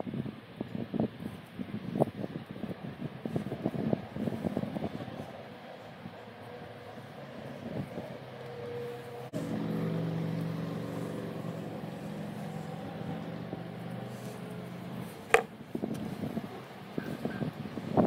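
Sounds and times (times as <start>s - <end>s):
motor engine running: 8.6s - 16.4s.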